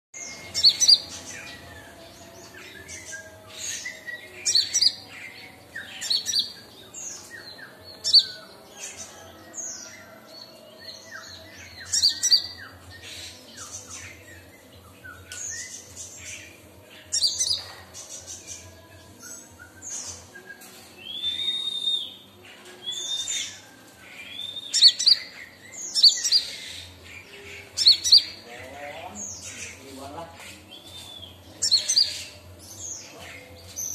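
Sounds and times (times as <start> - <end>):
bird chirping and twittering: 0.2 - 33.9.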